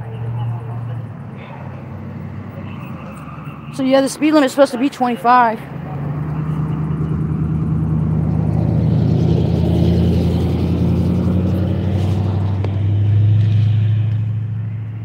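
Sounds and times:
pickup truck driving past: 0.0 - 15.0
vehicle engine humming: 0.0 - 15.0.

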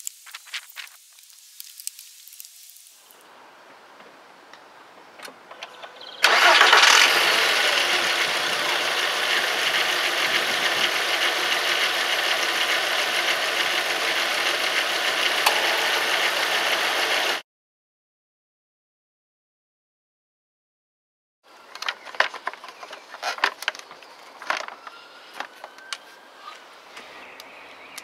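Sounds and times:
car engine starting and idling: 5.5 - 17.4.

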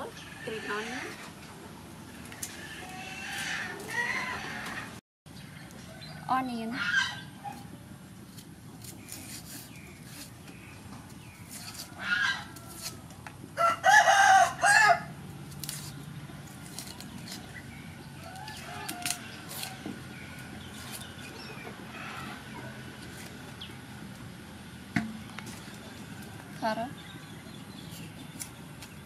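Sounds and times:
onion skin crackling: 8.2 - 10.5, 15.3 - 21.3
rooster crowing: 13.6 - 15.1.

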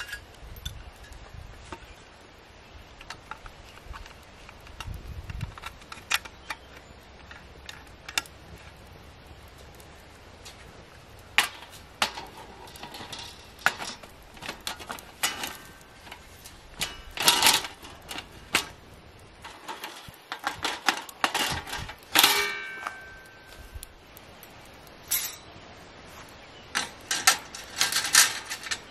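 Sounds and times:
light metal clanks and clicks: 9.7 - 18.8, 19.4 - 25.6, 26.7 - 28.9.

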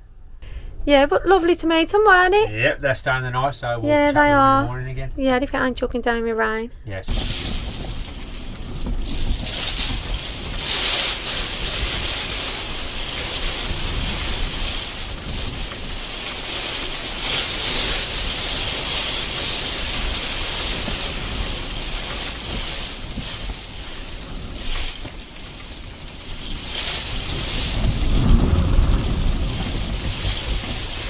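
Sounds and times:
strong wind gusting on microphone: 6.8 - 31.0.

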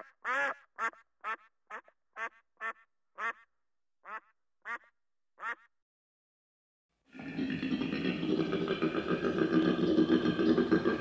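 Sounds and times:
duck quacking: 0.0 - 5.7.

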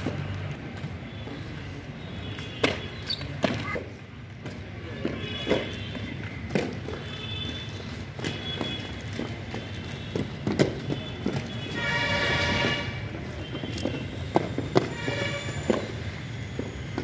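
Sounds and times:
skate wheels rolling on concrete: 0.0 - 17.0
skates knocking on ground: 4.5 - 17.0.

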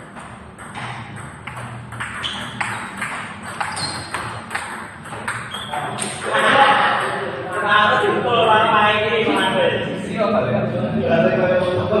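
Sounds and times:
table tennis ball clicking: 0.0 - 6.3.

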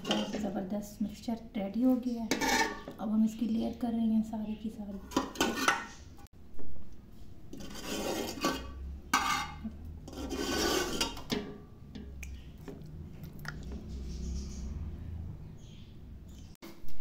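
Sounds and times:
metal spoon scraping a pot: 0.0 - 0.6, 2.0 - 3.0, 4.9 - 6.2, 7.5 - 12.1.

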